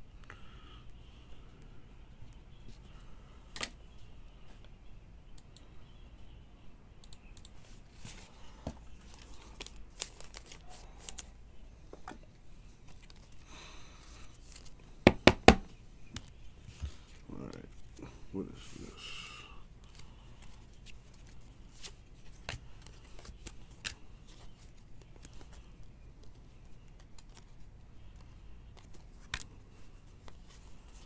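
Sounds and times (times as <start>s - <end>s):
card clicks and rustles: 7.9s - 11.4s, 19.8s - 31.0s
plastic sleeve crinkling: 9.0s - 11.3s.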